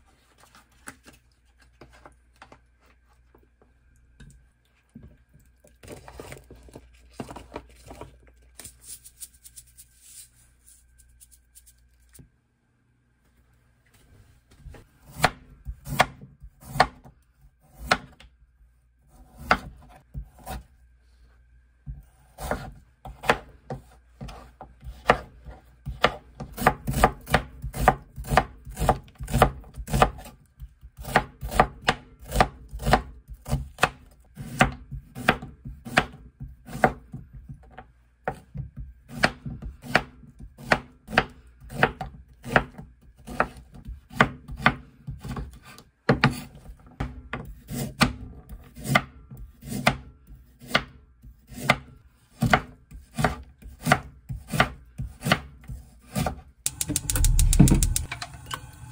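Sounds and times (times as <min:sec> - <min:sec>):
knife chopping on wooden board: 0:15.1 - 0:18.2, 0:19.3 - 0:20.6, 0:21.9 - 0:37.7, 0:38.3 - 0:58.1.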